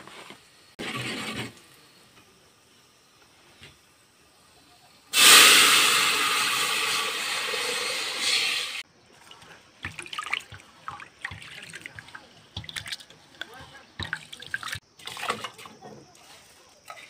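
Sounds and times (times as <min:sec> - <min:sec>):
loud rushing hiss: 0:05.1 - 0:08.8.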